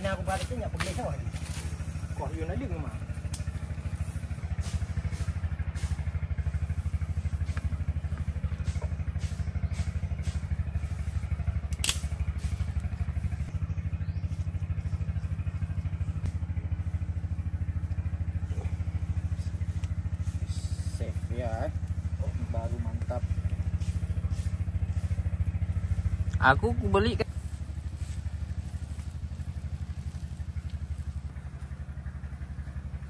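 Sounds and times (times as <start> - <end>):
small engine idling: 0.0 - 33.0
sharp snap: 11.6 - 12.3.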